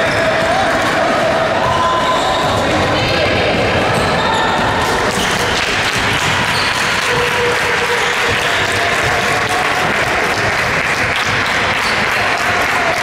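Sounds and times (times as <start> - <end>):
basketball bouncing on court: 2.2 - 12.2
crowd clapping in a hall: 4.8 - 13.0.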